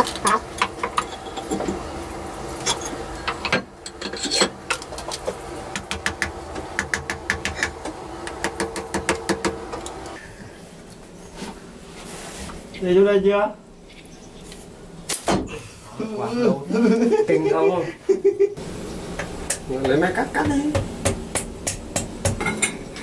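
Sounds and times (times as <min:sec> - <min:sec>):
steady mechanical hum: 0:00.0 - 0:23.0
steel tools clinking on metal: 0:02.6 - 0:04.6.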